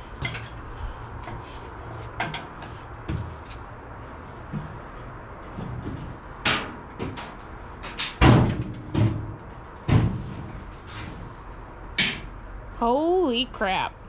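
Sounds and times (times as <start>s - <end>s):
sheet metal clunks and knocks: 5.5s - 10.7s.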